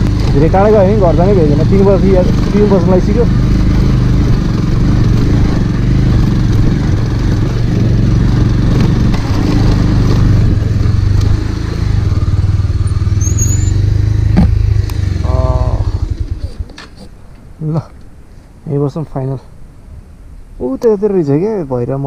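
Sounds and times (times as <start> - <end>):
motorcycle engine running: 0.0 - 16.9
wind and road noise: 0.0 - 22.0.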